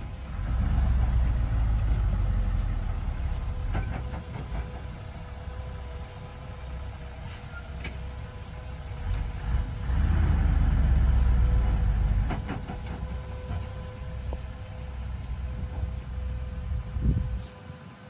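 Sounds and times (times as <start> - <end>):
truck diesel engine revving: 0.0 - 7.4, 8.0 - 16.7
soil unloading: 0.0 - 8.1.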